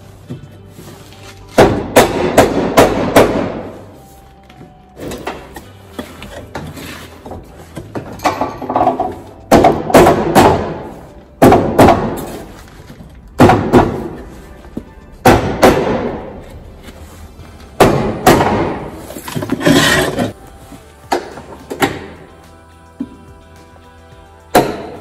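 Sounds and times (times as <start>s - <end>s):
bangs on sheet steel: 1.6s - 3.8s, 13.4s - 14.2s, 15.2s - 16.4s, 17.8s - 19.0s.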